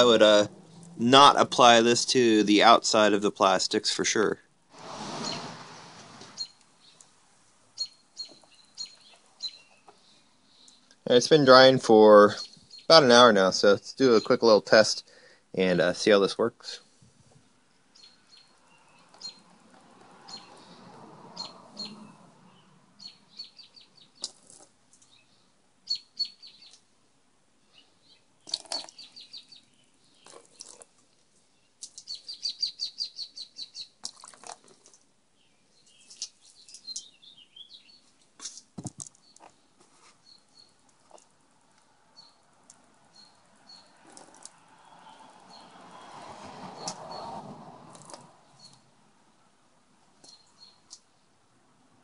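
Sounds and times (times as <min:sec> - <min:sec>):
rush of water: 0:04.8 - 0:06.4
small birds chirping: 0:05.2 - 0:05.5, 0:06.2 - 0:15.8, 0:16.7 - 0:26.9, 0:27.6 - 0:46.1, 0:46.8 - 0:48.9, 0:50.2 - 0:51.4.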